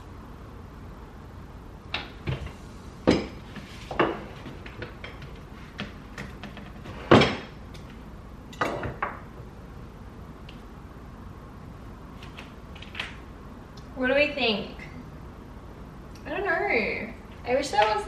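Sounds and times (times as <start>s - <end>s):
kitchen items knocking and clattering: 2.0s - 7.6s, 8.6s - 9.3s.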